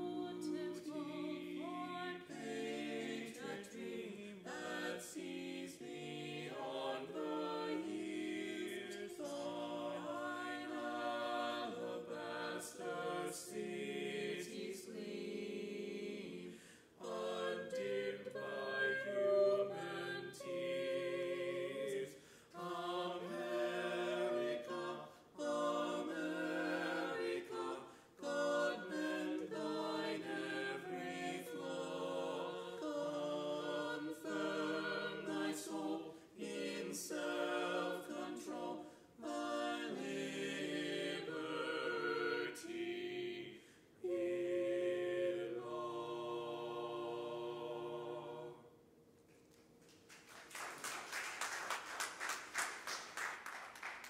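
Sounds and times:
a cappella group singing: 0.0 - 48.8
singers breathing: 16.5 - 17.0, 22.1 - 22.6, 27.8 - 28.2, 43.6 - 44.0.

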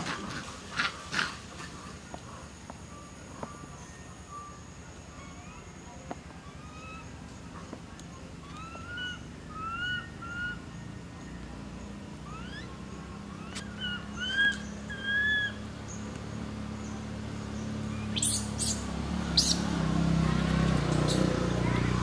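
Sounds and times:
high chirping calls: 3.5 - 19.7, 20.8 - 22.0.

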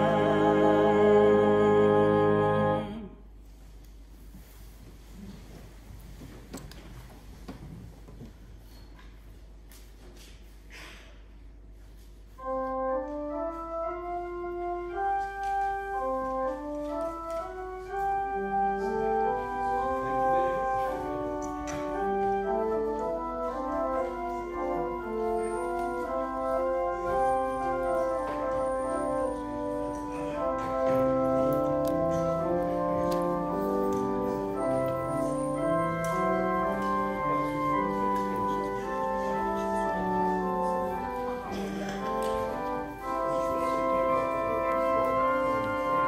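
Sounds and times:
church organ music: 0.0 - 3.1, 12.2 - 46.0.

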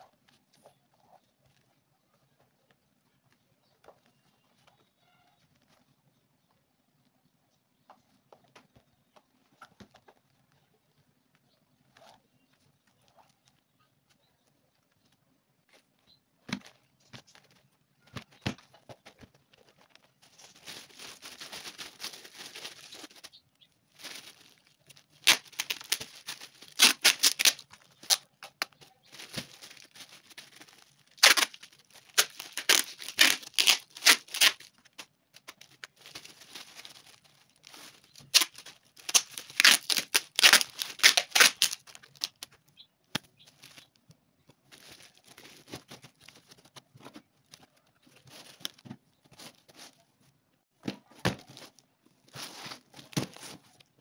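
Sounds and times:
plastic bag crinkling: 19.2 - 42.6, 44.6 - 46.7
packing tape ripping: 25.2 - 28.6, 29.2 - 34.7, 37.6 - 42.5.

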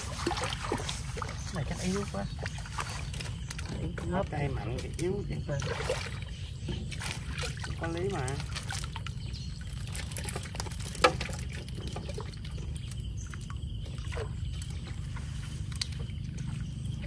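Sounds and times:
low steady rumble: 0.0 - 17.0
water trickling and splashing: 0.0 - 17.0.

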